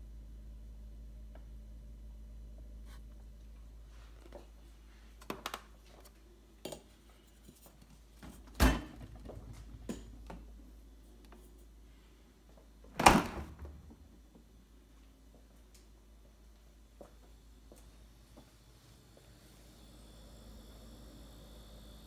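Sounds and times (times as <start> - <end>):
low hum: 0.0 - 5.1, 13.6 - 22.0
refrigerator doors thudding shut: 12.9 - 13.8.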